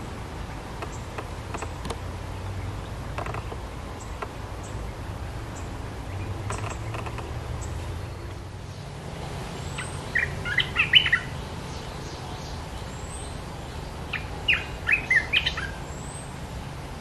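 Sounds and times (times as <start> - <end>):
bird chattering song: 5.6 - 8.4, 9.7 - 16.3.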